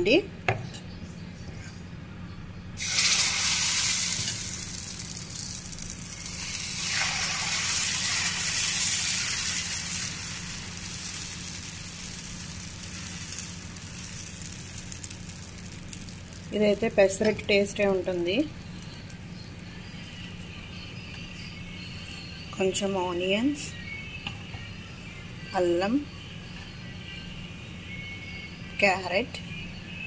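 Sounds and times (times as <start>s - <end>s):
batter sizzling on hot pan: 2.8s - 22.4s.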